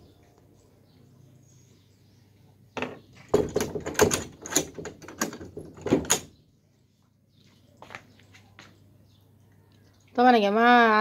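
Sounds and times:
metal cage gate rattling: 0:03.3 - 0:06.3.

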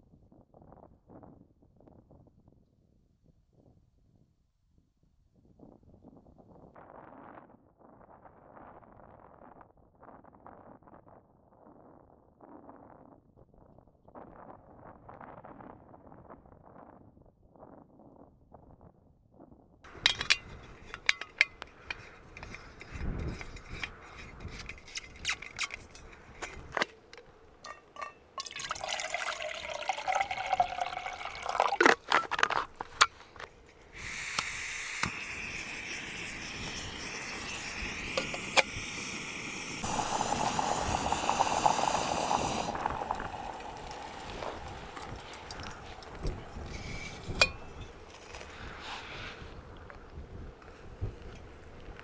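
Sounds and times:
gas burner hissing: 0:19.9 - 0:26.7, 0:33.6 - 0:48.9
camp stove gear clattering: 0:19.9 - 0:28.6
water pouring into pot: 0:27.6 - 0:32.1, 0:35.0 - 0:47.5.

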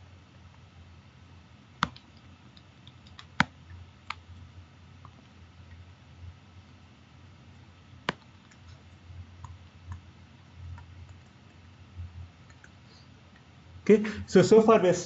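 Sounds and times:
low steady hum: 0:00.0 - 0:15.0
stylus tapping on screen: 0:01.8 - 0:04.2.

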